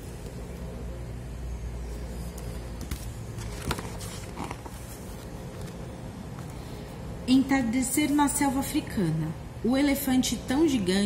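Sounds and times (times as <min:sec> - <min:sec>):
book pages rustling and turning: 0:02.1 - 0:06.6.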